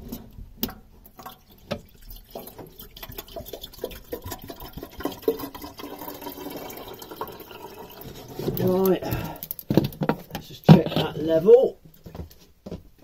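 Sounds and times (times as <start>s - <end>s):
liquid trickling and gurgling: 0.7s - 9.7s.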